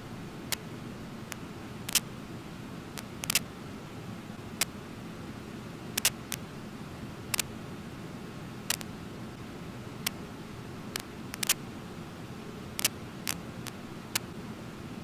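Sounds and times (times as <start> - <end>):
sharp clicks: 3.0 - 3.4, 6.0 - 6.4, 8.7 - 8.9, 10.9 - 11.6, 12.8 - 13.4.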